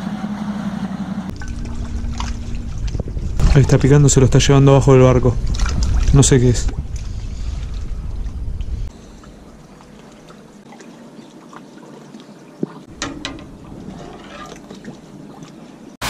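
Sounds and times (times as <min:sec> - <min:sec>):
low rumble: 0:01.2 - 0:09.6
water lapping against boat: 0:01.3 - 0:16.0
light clicks and knocks: 0:12.6 - 0:14.6.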